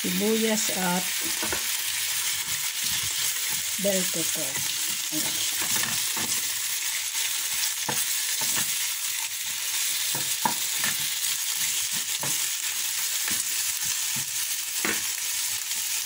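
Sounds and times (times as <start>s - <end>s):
vegetables sizzling in a frying pan: 0.0s - 16.0s
spatula scraping a pan: 4.4s - 12.6s.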